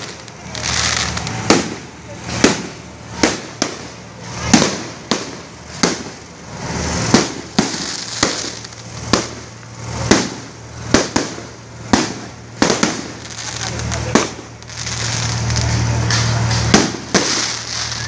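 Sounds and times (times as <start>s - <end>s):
fireworks bangs: 0.0s - 18.0s
fireworks hiss: 0.0s - 18.0s.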